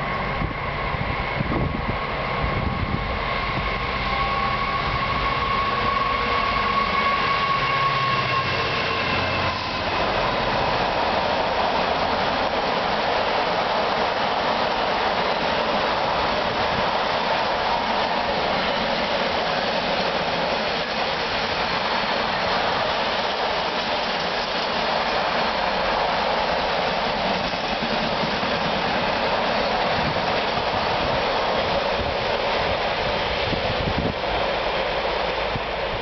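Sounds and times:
wind buffeting microphone: 0:00.0 - 0:04.0, 0:09.6 - 0:25.3, 0:27.2 - 0:36.0
freight train rolling past: 0:00.0 - 0:36.0.

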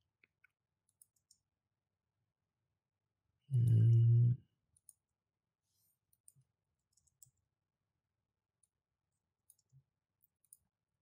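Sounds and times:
keyboard and mouse clicks: 0:00.1 - 0:01.5, 0:03.5 - 0:04.1, 0:06.1 - 0:07.4, 0:09.4 - 0:10.7.

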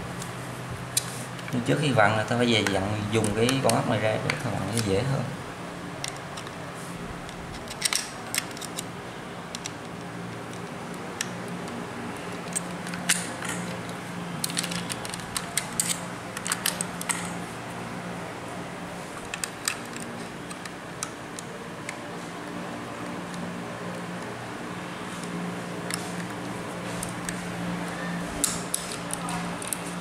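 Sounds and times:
steady low hum: 0:00.0 - 0:30.0
metallic clicks and rattles: 0:10.5 - 0:17.4.

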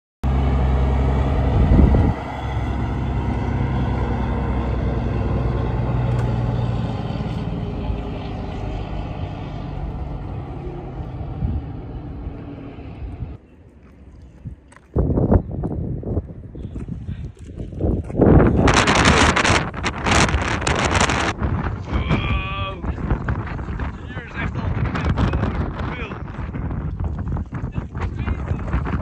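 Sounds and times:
truck diesel engines droning: 0:00.2 - 0:14.6, 0:18.6 - 0:26.8.

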